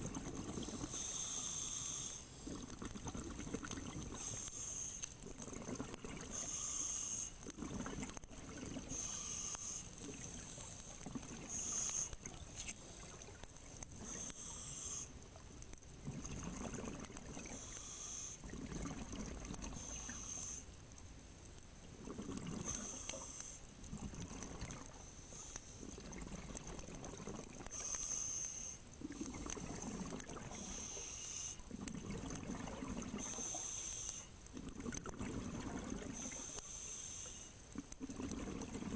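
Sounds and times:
exhaled bubbles rumbling: 0:07.6 - 0:08.9, 0:16.0 - 0:17.5, 0:18.4 - 0:19.8, 0:22.0 - 0:22.6, 0:29.1 - 0:30.6, 0:31.7 - 0:33.2, 0:34.5 - 0:36.2, 0:38.0 - 0:38.9.

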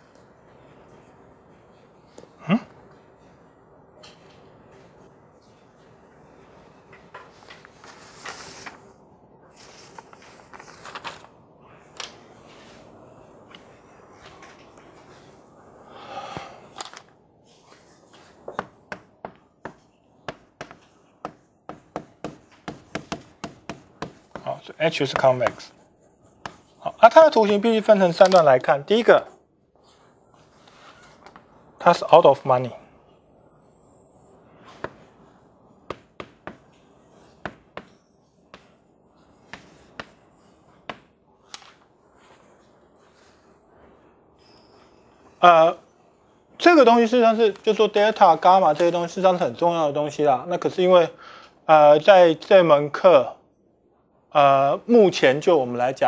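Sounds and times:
chalk tapping on a blackboard: 0:18.6 - 0:24.5, 0:26.4 - 0:26.8, 0:35.9 - 0:36.7, 0:37.4 - 0:38.8, 0:39.4 - 0:40.2.

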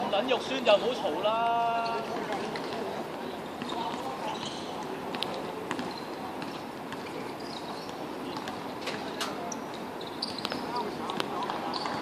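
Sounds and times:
brief high squeaks: 0:10.0 - 0:10.6.

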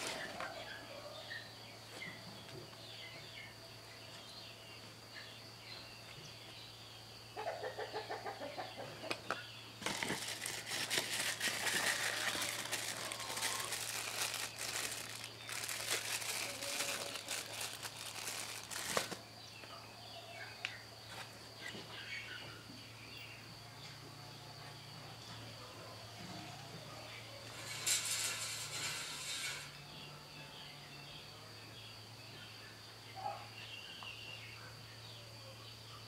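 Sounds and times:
packaging crinkling and rustling: 0:09.8 - 0:19.2.

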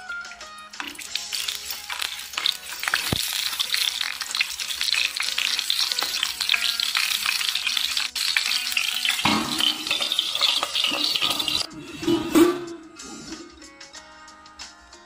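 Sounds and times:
oil sizzling in a pan: 0:00.3 - 0:12.1.

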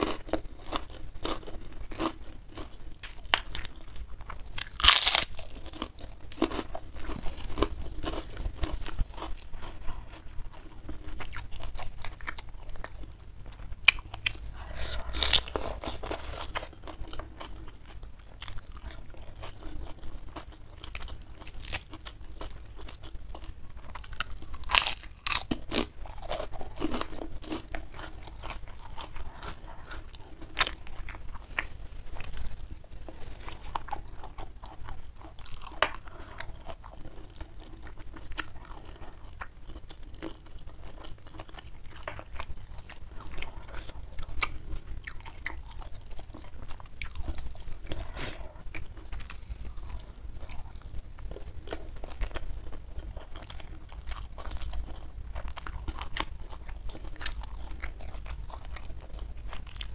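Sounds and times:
small crunches: 0:00.0 - 0:17.7, 0:18.4 - 0:59.9
person chewing food: 0:00.0 - 0:59.9.

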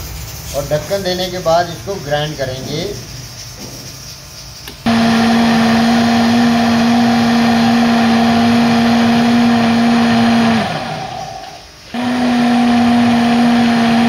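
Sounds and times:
blender motor whining: 0:04.9 - 0:14.0
blender winding down: 0:04.9 - 0:14.0.

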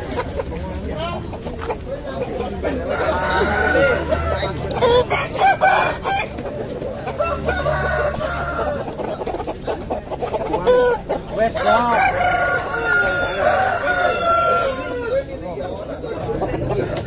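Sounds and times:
roosters clucking: 0:00.0 - 0:17.0
roosters crowing: 0:02.4 - 0:09.5, 0:10.5 - 0:15.4.

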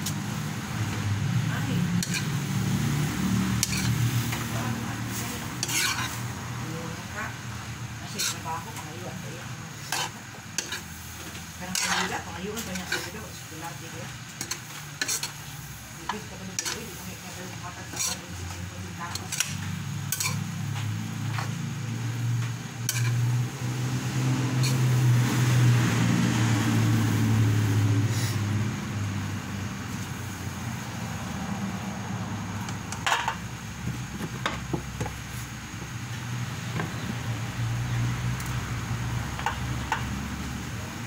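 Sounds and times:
metal ladle scraping a wok: 0:01.9 - 0:06.4, 0:08.0 - 0:21.6, 0:22.8 - 0:23.4, 0:24.5 - 0:25.0, 0:28.0 - 0:28.5.

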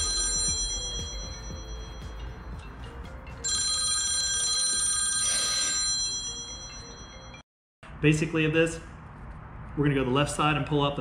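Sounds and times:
bell-like ringing tones: 0:00.0 - 0:07.4.

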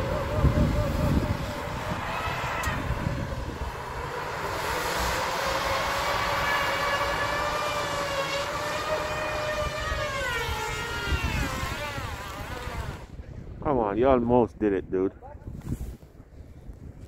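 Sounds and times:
tires spinning in snow: 0:00.0 - 0:13.1.

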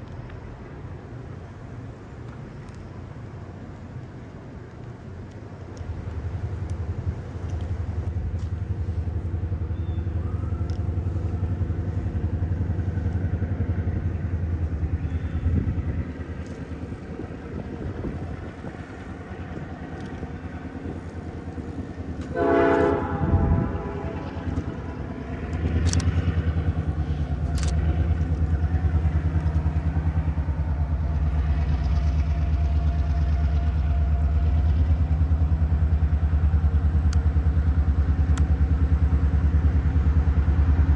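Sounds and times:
diesel locomotive engine drone: 0:00.0 - 0:40.9
train horn blast: 0:22.2 - 0:26.2
sharp clicks: 0:25.5 - 0:26.7, 0:27.4 - 0:28.5.

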